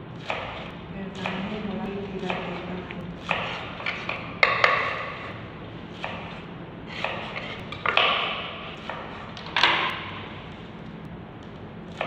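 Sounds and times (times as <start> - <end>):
knife slicing cabbage: 0.2 - 1.6, 2.2 - 5.3, 5.9 - 9.4.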